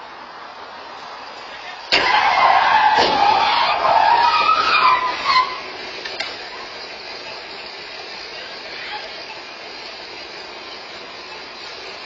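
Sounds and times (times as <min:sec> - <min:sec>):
tires squealing: 0:01.4 - 0:07.0
car collision impact: 0:01.9 - 0:06.4.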